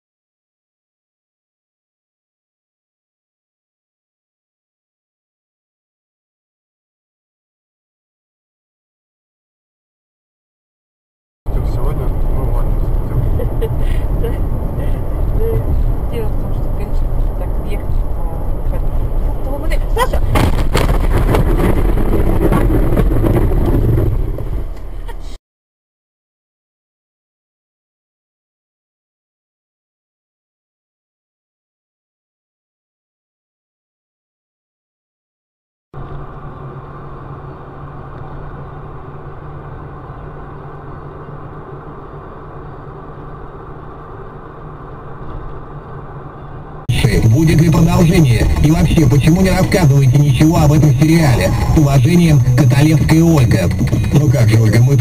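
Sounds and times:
car engine and road noise: 0:11.5 - 0:25.4, 0:36.0 - 0:55.0
car rumbling over rough ground: 0:11.5 - 0:25.4
constant low hum: 0:11.5 - 0:25.4, 0:36.0 - 0:55.0
knocks and rattles: 0:20.3 - 0:24.6.

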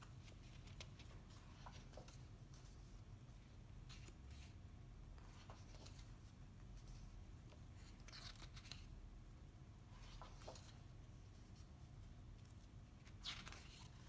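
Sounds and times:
paper pages rustling: 0:00.0 - 0:03.0, 0:03.8 - 0:04.6, 0:05.2 - 0:09.0, 0:09.9 - 0:11.7, 0:12.4 - 0:14.0.

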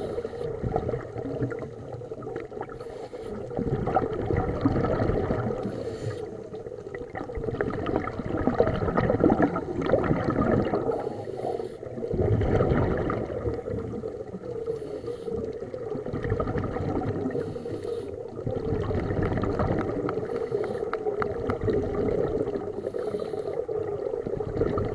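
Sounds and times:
underwater bubbles gurgling: 0:00.0 - 0:24.9
regulator breathing: 0:02.8 - 0:03.5, 0:05.6 - 0:06.4, 0:10.9 - 0:12.0, 0:14.6 - 0:15.6, 0:17.4 - 0:18.3, 0:20.2 - 0:21.1, 0:22.8 - 0:23.7.

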